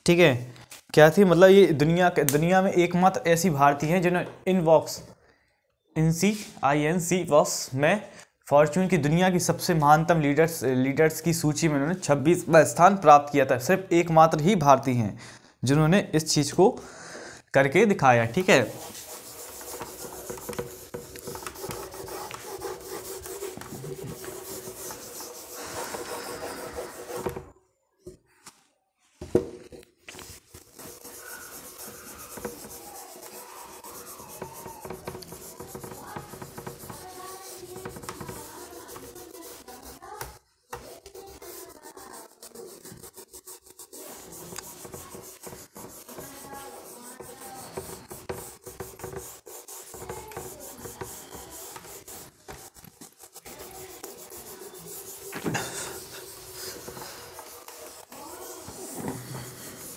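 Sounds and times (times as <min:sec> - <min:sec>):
duster scrubbing a whiteboard: 0:18.2 - 0:27.5, 0:30.1 - 0:59.9.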